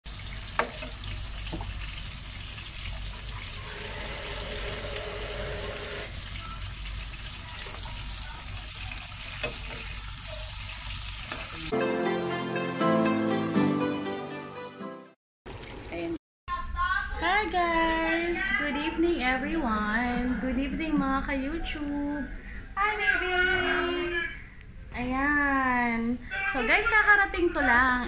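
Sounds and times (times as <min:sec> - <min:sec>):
chicken sizzling in oil: 0:00.1 - 0:11.7
music: 0:11.7 - 0:15.2.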